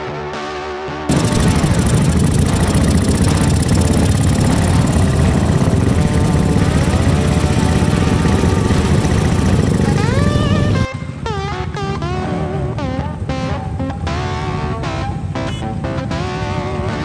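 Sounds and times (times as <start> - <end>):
motorcycle engines rumbling: 1.1 - 10.9.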